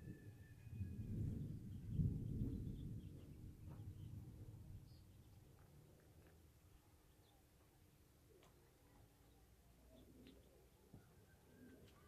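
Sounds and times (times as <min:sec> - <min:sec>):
distant thunder rumbling: 0:00.0 - 0:04.9.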